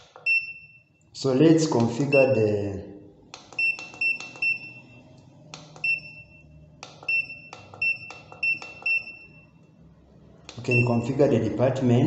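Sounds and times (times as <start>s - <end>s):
keypad button clicks: 3.3s - 4.8s, 5.5s - 6.2s, 6.8s - 9.3s.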